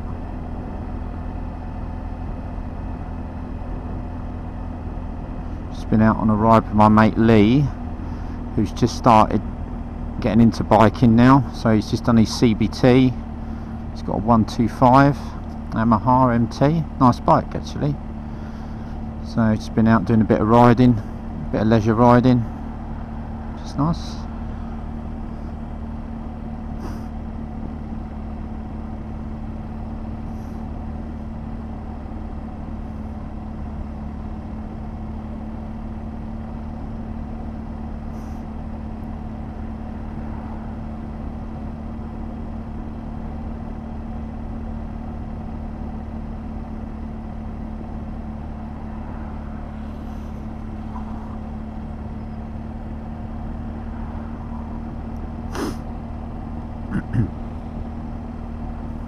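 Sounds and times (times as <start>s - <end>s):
motorcycle engine drone: 0.0s - 59.0s.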